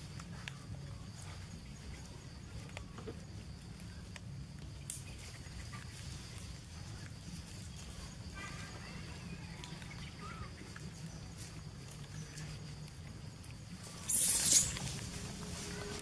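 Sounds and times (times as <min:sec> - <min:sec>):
high chirping calls: 0:14.0 - 0:14.8.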